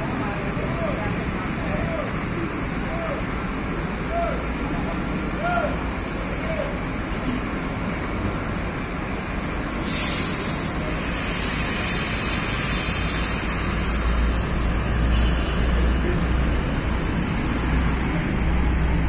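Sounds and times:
bus engine idling: 0.0 - 19.0
loud hiss of air: 9.6 - 19.0.

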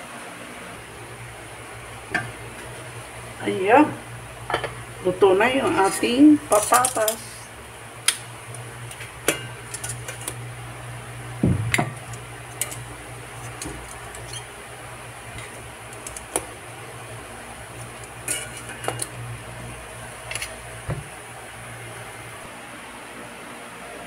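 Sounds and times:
steady low hum: 0.0 - 22.5
metal utensil clinking on pot: 9.3 - 10.3, 11.8 - 14.5, 17.9 - 19.2.

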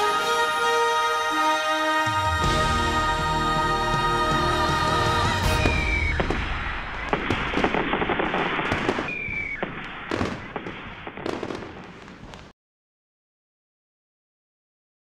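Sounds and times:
fireworks crackling and popping: 4.9 - 12.6
falling whistle: 5.3 - 10.3.

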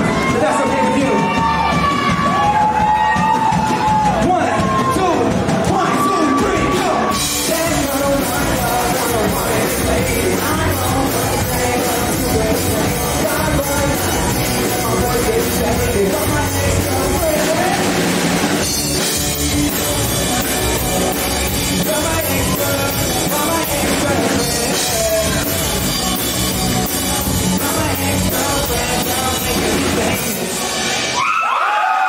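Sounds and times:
rock band playing: 0.0 - 31.5
man singing: 5.7 - 31.0.

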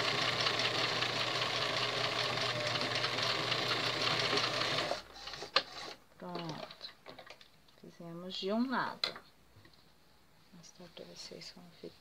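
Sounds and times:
sewing machine stitching: 0.0 - 6.0.

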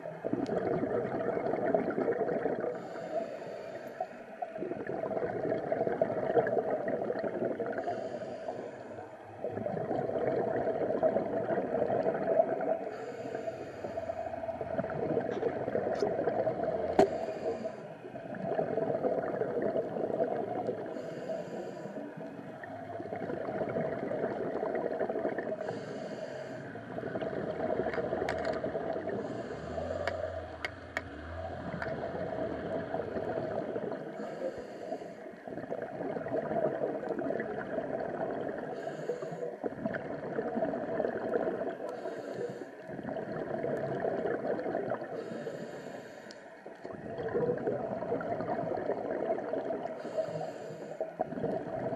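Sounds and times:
exhaled bubbles underwater: 0.0 - 51.9
steady underwater hiss: 0.0 - 51.9
low hum: 26.4 - 34.0.

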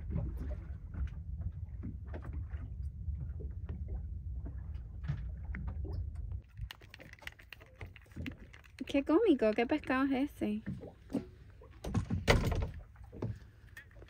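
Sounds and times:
steady low rumble: 0.0 - 6.7
water lapping against hull: 0.0 - 14.0.

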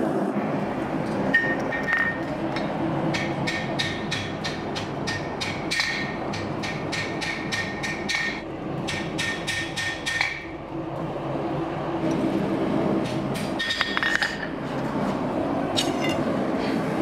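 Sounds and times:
steady low hum: 0.0 - 17.0
hammer striking steel on anvil: 1.3 - 10.5.

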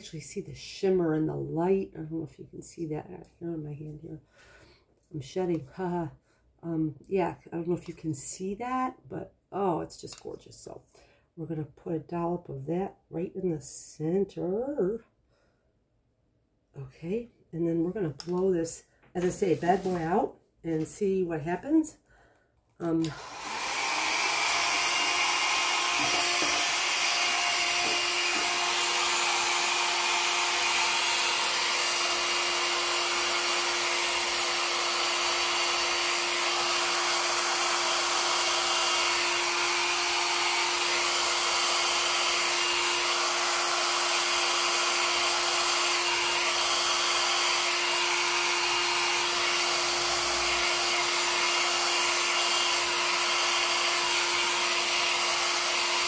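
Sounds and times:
hair dryer blowing: 17.8 - 21.6, 22.8 - 56.0.

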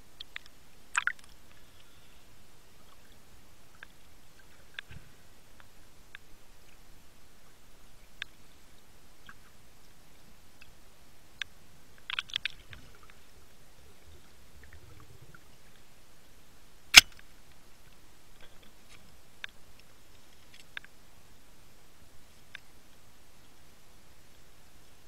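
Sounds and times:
faint underwater hiss: 0.0 - 25.0
short underwater clicks: 16.9 - 17.3.

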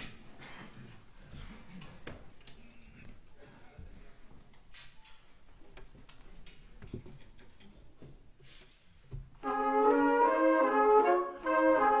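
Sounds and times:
brass playing held chords: 9.4 - 12.0.

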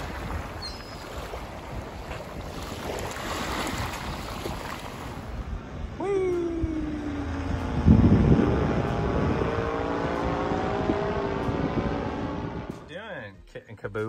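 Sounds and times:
small waves washing onto sand: 0.0 - 5.4
wind on microphone: 0.0 - 12.9
paramotor engine drone: 5.3 - 12.9.

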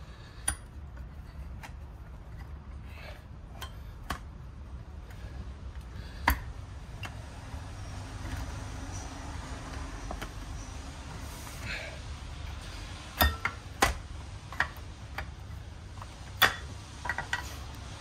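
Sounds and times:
low steady hum: 0.0 - 18.0.

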